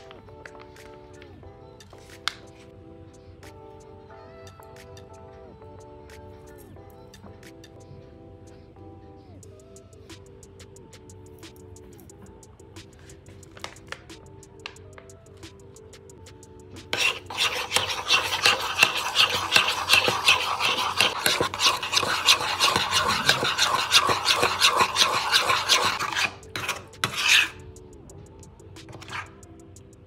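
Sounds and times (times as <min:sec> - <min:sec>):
metal spoon stirring sauce in bowl: 0:17.0 - 0:27.6.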